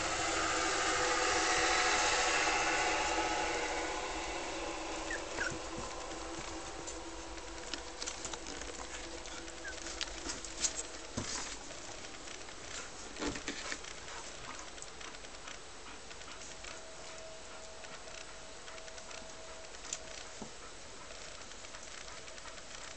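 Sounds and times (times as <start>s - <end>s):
faint steady hum: 0.0s - 22.9s
puppy squeaking: 5.0s - 5.8s, 8.9s - 10.0s
soft clicks and rustles: 5.3s - 22.9s.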